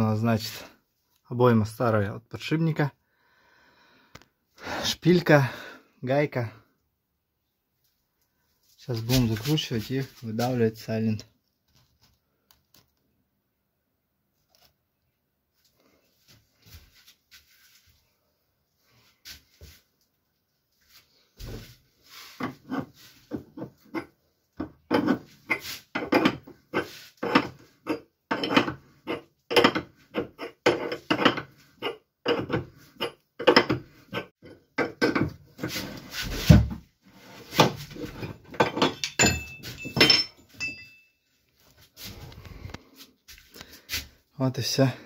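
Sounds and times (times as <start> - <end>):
metallic ringing: 38.8 - 41.2.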